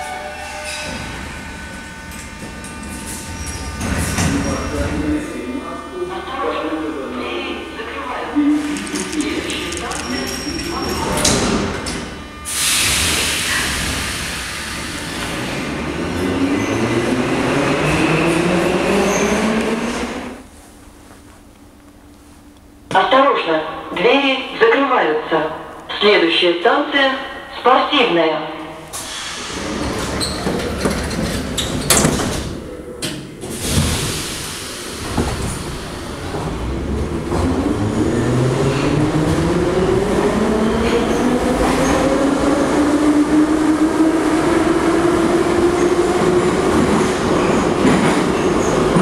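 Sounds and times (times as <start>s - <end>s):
loud air hiss: 12.5s - 14.7s, 28.9s - 29.9s
standing train rumble: 28.8s - 49.0s
sliding doors closing with bang: 28.9s - 39.5s.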